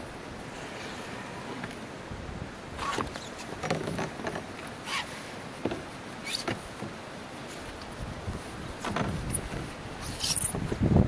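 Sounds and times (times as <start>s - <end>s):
moving water hiss: 0.0s - 3.6s, 4.5s - 10.9s
gear knocking against canoe hull: 2.9s - 4.5s.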